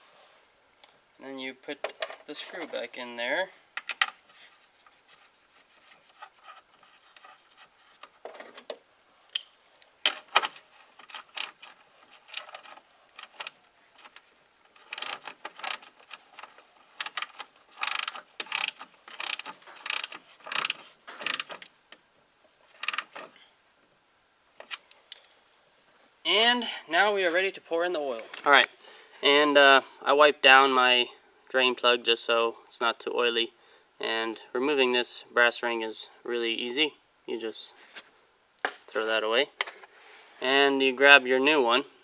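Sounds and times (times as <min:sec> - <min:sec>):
hand ratchet clicking: 0:14.8 - 0:21.6, 0:22.8 - 0:23.3.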